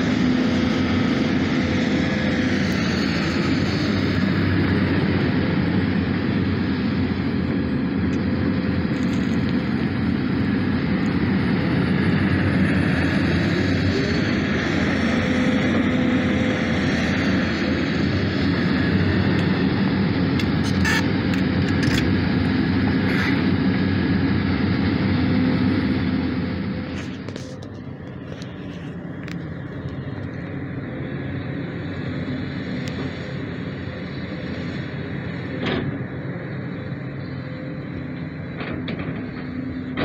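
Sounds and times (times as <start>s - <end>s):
excavator diesel engine under load: 0.0s - 40.0s.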